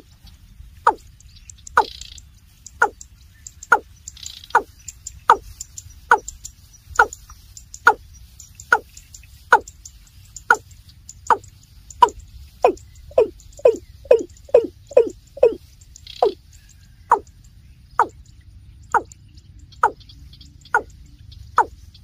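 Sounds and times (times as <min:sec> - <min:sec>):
bird calling deep falling notes: 0:12.0 - 0:15.6.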